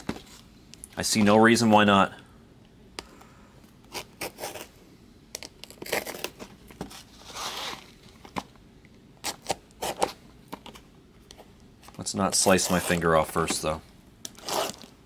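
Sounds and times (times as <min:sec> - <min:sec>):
cardboard tearing: 0:03.9 - 0:04.7, 0:05.6 - 0:07.9, 0:14.3 - 0:15.0.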